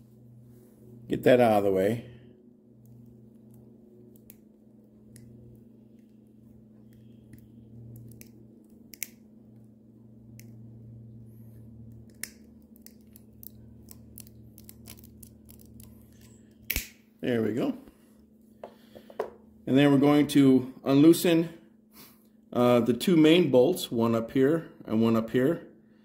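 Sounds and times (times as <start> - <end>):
steady low hum: 0.0 - 26.0
cutters clicking and snipping: 6.9 - 9.2, 11.9 - 17.0.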